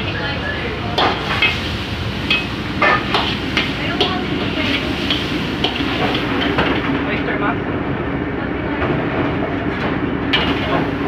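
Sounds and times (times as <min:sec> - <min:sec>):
gas burner roaring: 0:00.0 - 0:11.0
metal ladle clanking on wok: 0:01.0 - 0:06.8.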